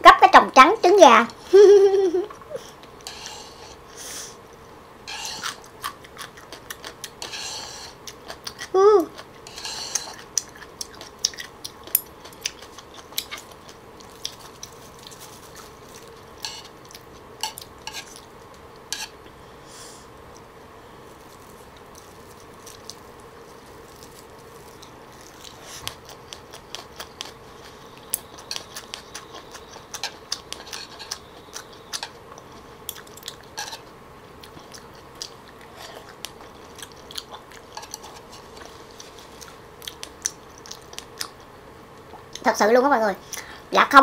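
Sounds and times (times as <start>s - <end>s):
faint steady hum: 0.0s - 44.0s
chewing crisp lettuce: 5.2s - 18.6s, 20.3s - 33.6s, 34.4s - 41.5s.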